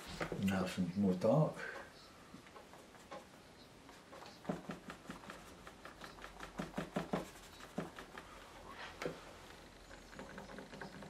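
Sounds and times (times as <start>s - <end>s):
sponge dabbing paint: 4.0s - 9.0s.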